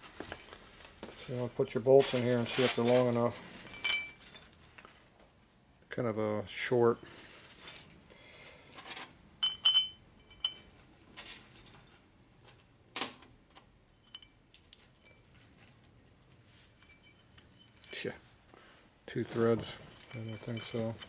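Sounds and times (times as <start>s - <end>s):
metal bolts clinking on workbench: 8.9s - 11.3s, 19.3s - 21.0s.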